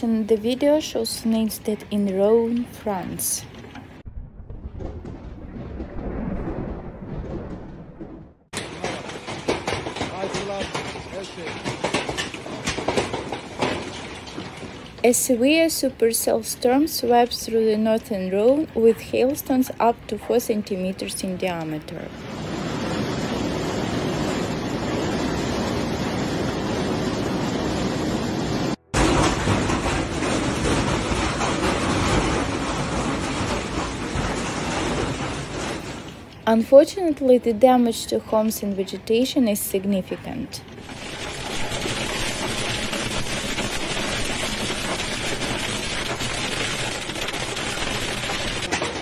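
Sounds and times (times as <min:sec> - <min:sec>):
wind-driven hail and rain: 0:04.0 - 0:18.1, 0:20.6 - 0:36.9, 0:40.8 - 0:49.0
hailstone impacts: 0:40.8 - 0:49.0.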